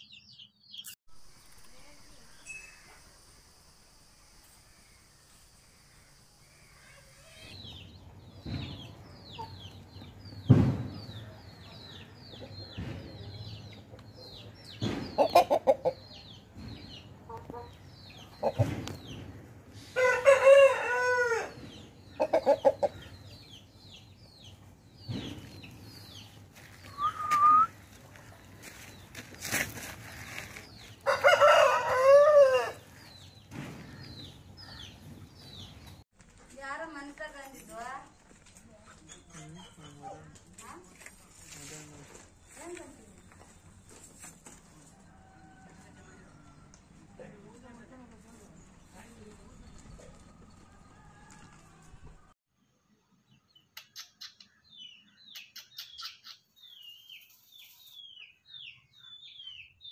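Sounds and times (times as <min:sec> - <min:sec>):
chickens clucking: 0:11.0 - 0:19.6, 0:21.6 - 0:23.7
rooster crowing: 0:20.0 - 0:21.5, 0:31.0 - 0:32.9, 0:50.6 - 0:52.3.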